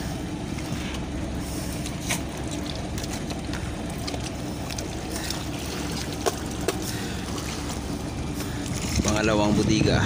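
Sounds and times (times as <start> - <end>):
boat engine humming: 0.0 - 10.0
fish knocking and slapping on deck: 1.8 - 7.0.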